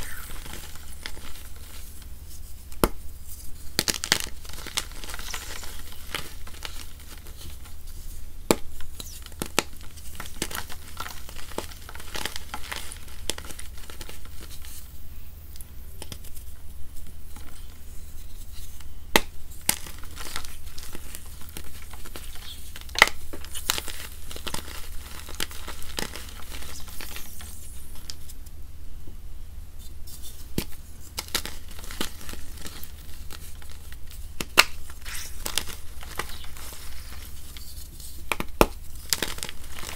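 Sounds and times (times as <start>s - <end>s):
wet chalk crunching by hand: 30.2s - 39.9s.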